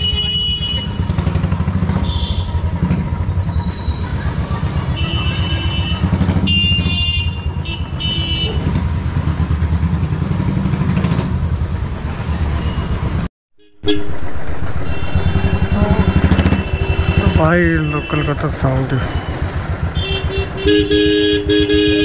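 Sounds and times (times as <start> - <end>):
horn honks: 0.0 - 1.2, 2.0 - 2.8, 4.8 - 8.7, 13.6 - 22.0.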